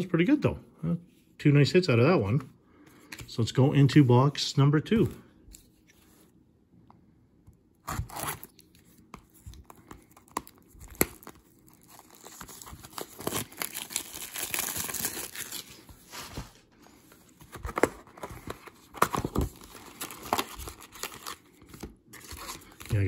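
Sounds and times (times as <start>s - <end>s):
plastic shrink-wrap ripping: 10.2s - 15.8s.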